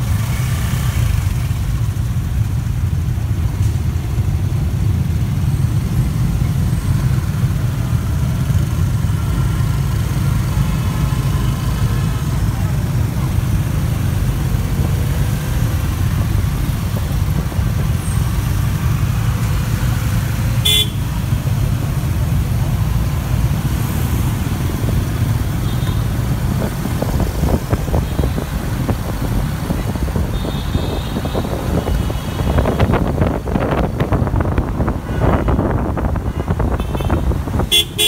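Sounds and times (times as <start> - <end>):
scooter engine and road rumble: 0.0 - 38.0
car horn toots: 20.6 - 21.1, 36.3 - 38.0
wind buffeting microphone: 26.2 - 37.7.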